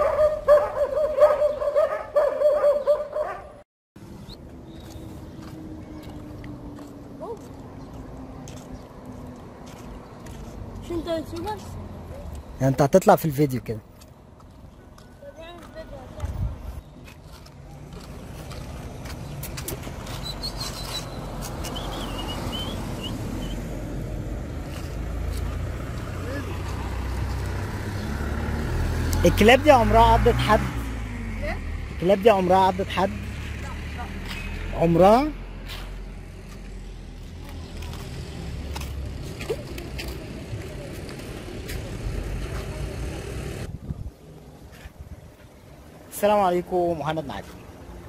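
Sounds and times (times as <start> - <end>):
dogs barking and yelping: 0.0 - 3.6
car approaching: 4.0 - 12.8, 17.4 - 48.0.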